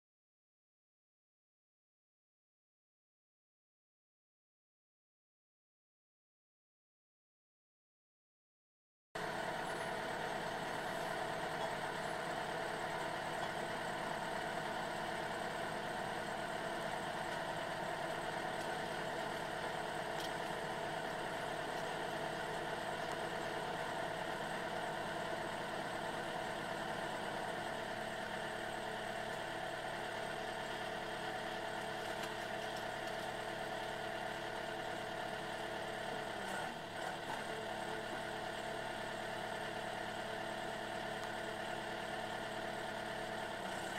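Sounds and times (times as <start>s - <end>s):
wood splitter engine running: 9.2s - 43.9s.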